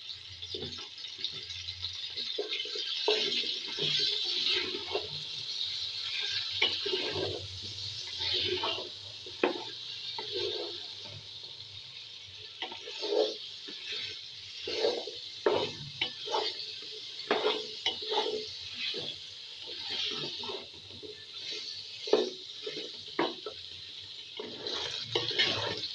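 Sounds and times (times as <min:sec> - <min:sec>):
vegetables sizzling in oil: 0:00.0 - 0:25.9
spatula knocking and scraping pot: 0:02.2 - 0:05.2, 0:06.1 - 0:11.2, 0:12.6 - 0:23.7, 0:24.4 - 0:25.9.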